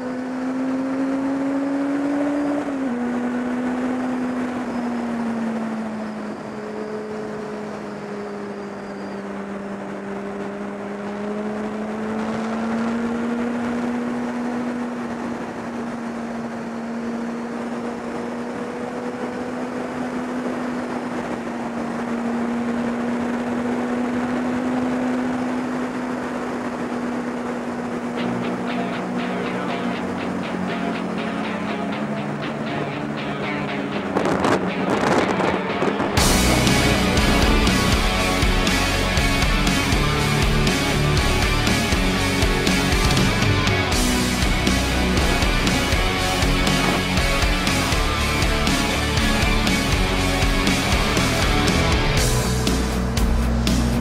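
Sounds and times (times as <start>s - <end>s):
motorcycle engine cruising: 0.0s - 54.0s
wind rush on microphone: 33.9s - 39.4s, 41.7s - 48.0s.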